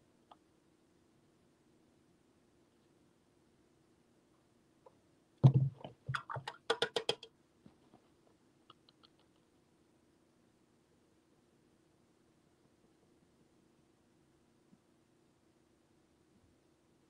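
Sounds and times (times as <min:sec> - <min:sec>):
faint steady hum: 0:00.0 - 0:17.0
clicks and light taps: 0:04.8 - 0:07.8, 0:08.6 - 0:09.5
thump: 0:05.4 - 0:05.8.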